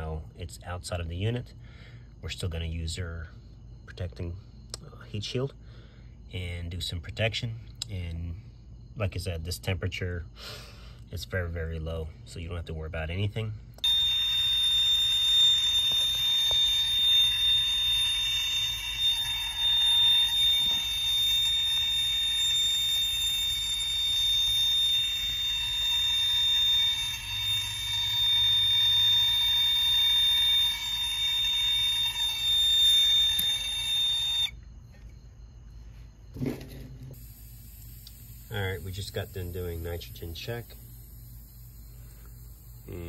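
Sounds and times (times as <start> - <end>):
gas torch flame hissing and whistling: 13.8 - 34.5, 37.1 - 43.0.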